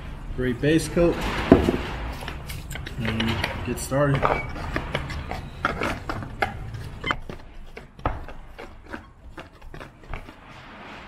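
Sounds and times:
paint roller rubbing in tray: 4.2s - 11.0s.

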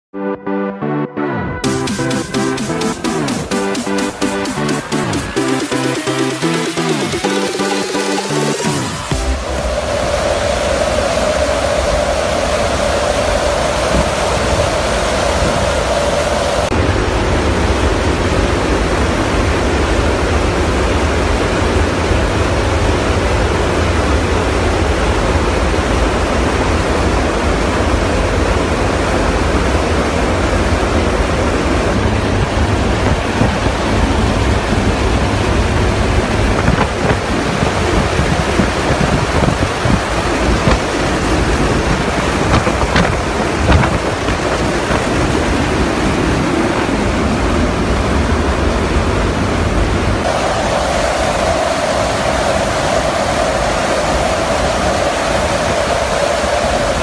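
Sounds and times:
aircraft engine and airflow rush: 1.6s - 57.0s
wind buffeting microphone: 23.6s - 57.0s.

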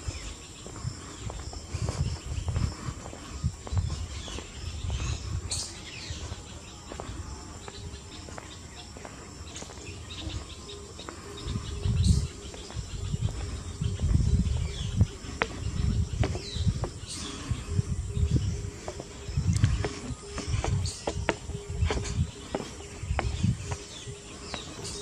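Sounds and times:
birds chirping: 0.0s - 25.0s
high insect drone: 0.0s - 25.0s
low microphone rumbles: 11.3s - 25.0s.

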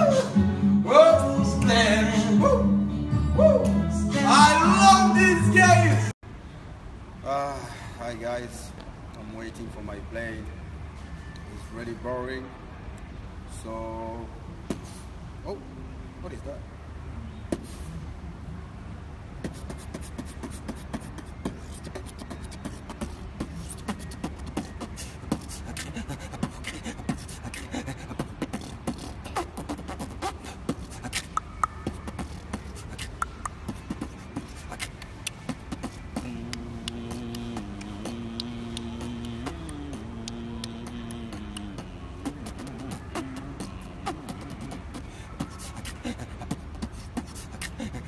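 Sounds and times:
man beatboxing: 0.0s - 2.7s, 19.4s - 48.0s
low voiced tone: 3.4s - 6.2s, 25.9s - 47.1s.

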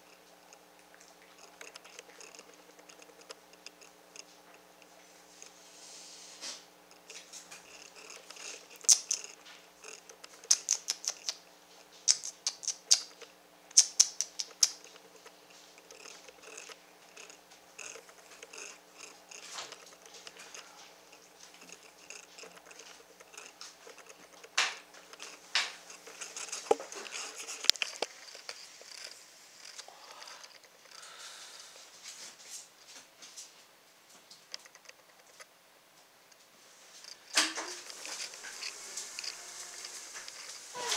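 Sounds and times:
puppy claws clicking and scratching: 0.0s - 5.6s, 6.9s - 31.0s, 34.5s - 35.5s.

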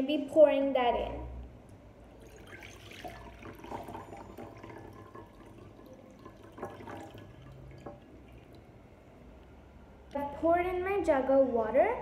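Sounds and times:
water pouring into a bowl: 2.1s - 8.8s.

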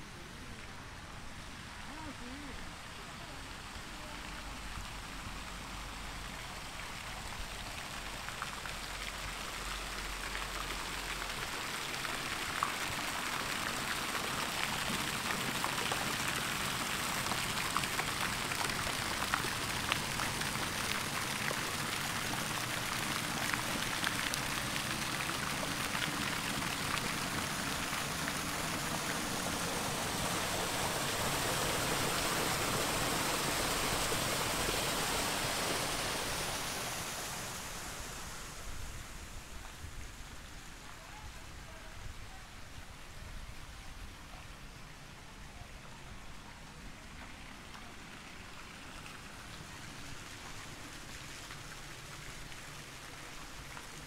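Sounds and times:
watery hiss: 8.8s - 40.9s.

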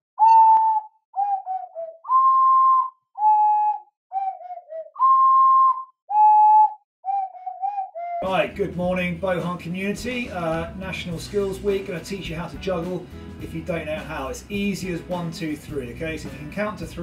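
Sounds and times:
ocarina melody: 0.2s - 8.4s.

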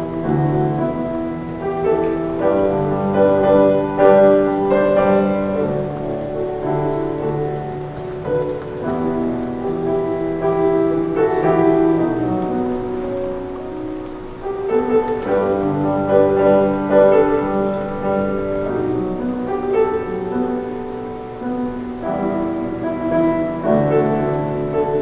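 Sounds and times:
grand piano chords: 0.0s - 25.0s.

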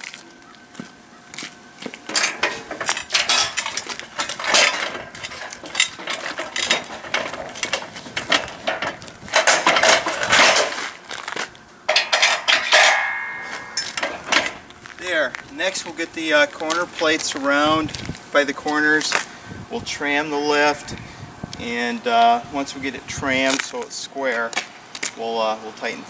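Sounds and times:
metal parts clanking: 2.0s - 15.4s
metallic ring: 2.1s - 10.8s, 11.9s - 14.6s.

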